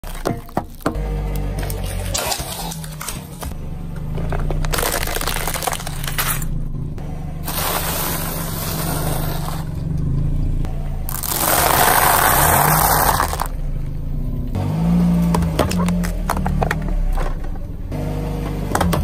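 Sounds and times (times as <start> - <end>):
car engine humming: 0.0 - 19.0
tyre crushing toy crackling: 4.5 - 6.5, 11.1 - 13.5.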